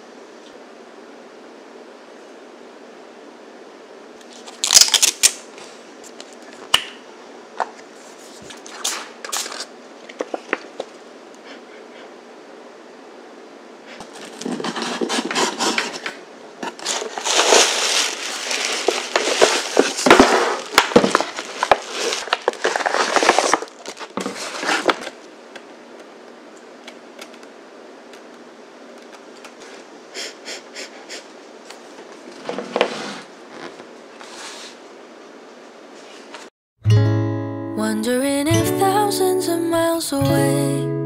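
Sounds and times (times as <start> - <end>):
paper bag rustling and crinkling: 14.0 - 25.2.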